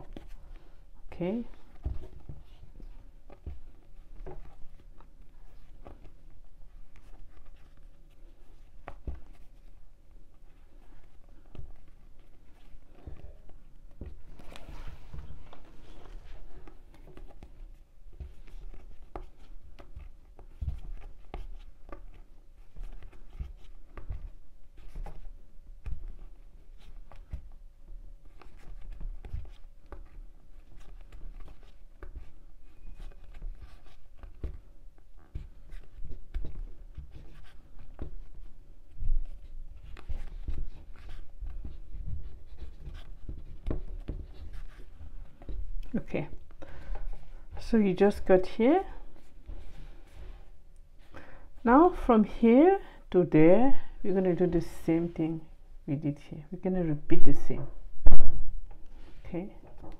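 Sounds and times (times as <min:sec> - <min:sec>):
yarn rubbing and scratching: 0:01.2 - 0:27.3.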